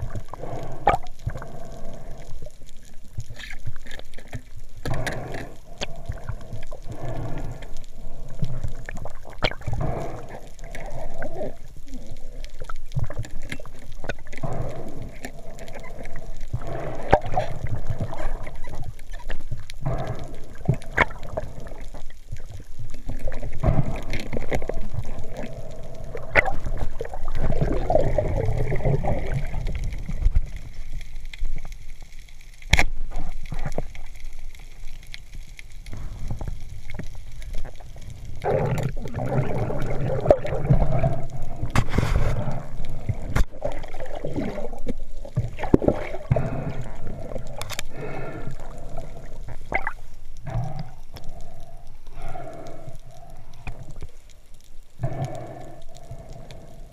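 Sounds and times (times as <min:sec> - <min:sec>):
underwater water swishing and gurgling: 0:00.0 - 0:56.9.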